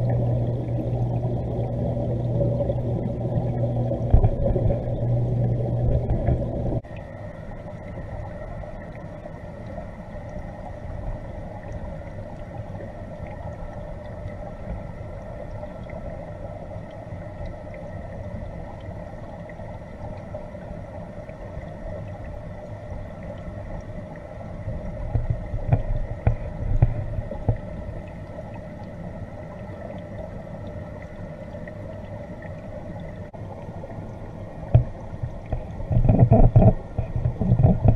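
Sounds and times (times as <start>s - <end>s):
low knocks and rumbling: 0.0s - 6.8s, 25.0s - 27.7s, 34.7s - 37.9s
louder low hum: 0.0s - 19.1s
underwater pump hum: 0.0s - 37.9s.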